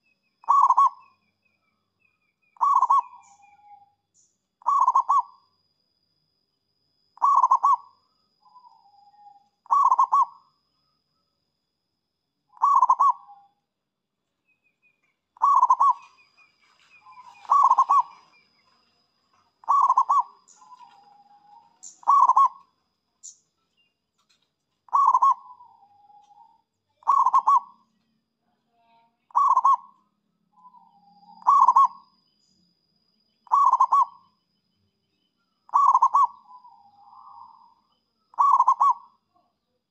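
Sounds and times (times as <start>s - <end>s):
dove cooing: 0.4s - 1.0s, 2.6s - 3.7s, 4.6s - 5.4s, 7.2s - 7.9s, 9.1s - 10.4s, 12.6s - 13.4s, 15.4s - 16.2s, 16.9s - 18.4s, 19.6s - 22.7s, 24.9s - 27.8s, 29.3s - 29.9s, 30.6s - 32.0s, 33.5s - 34.2s, 35.7s - 39.1s.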